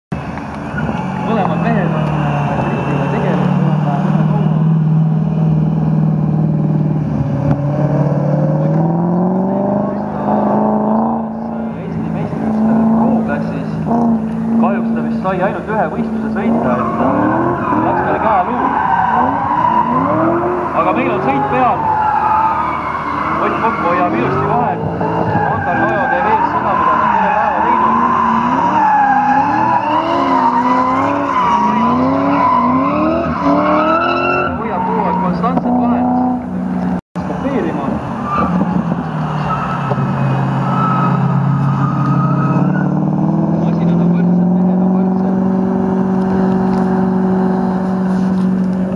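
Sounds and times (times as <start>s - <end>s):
car engines revving high: 0.1s - 48.9s
tyres squealing: 9.5s - 36.4s, 37.4s - 44.4s.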